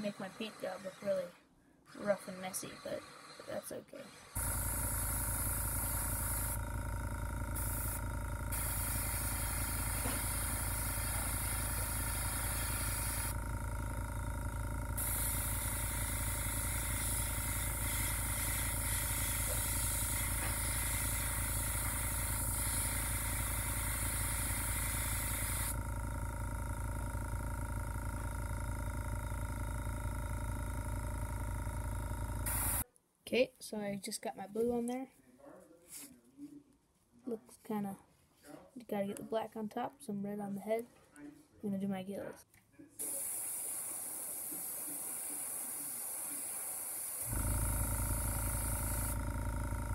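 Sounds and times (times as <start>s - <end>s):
air compressor hum: 0.0s - 32.8s, 43.0s - 49.9s
airbrush air hiss: 4.4s - 6.6s, 7.5s - 13.4s, 15.0s - 25.8s, 32.4s - 32.8s, 43.0s - 49.2s.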